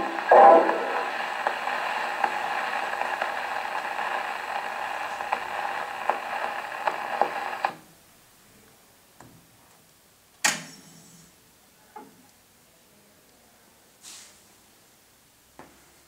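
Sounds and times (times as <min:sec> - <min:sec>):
record needle clicks: 0:00.0 - 0:07.8
record needle hissing and crackling: 0:00.0 - 0:07.9.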